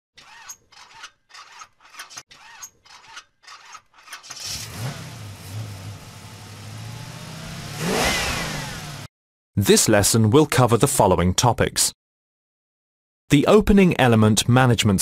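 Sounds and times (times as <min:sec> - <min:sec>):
car engine starting and revving: 0:04.4 - 0:09.1.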